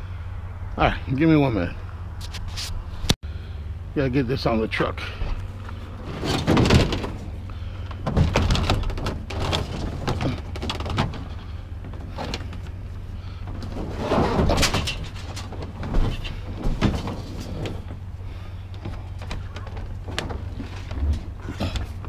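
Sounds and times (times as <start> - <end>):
metal scraping and knocking: 6.0 - 7.3, 13.5 - 18.0.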